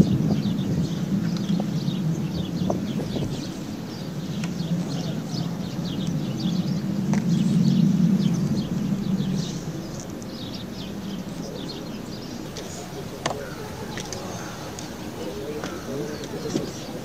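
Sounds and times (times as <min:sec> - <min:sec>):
birds chirping: 0:00.0 - 0:17.0
steady low rumble: 0:00.0 - 0:17.0
faint clicks: 0:12.4 - 0:17.0.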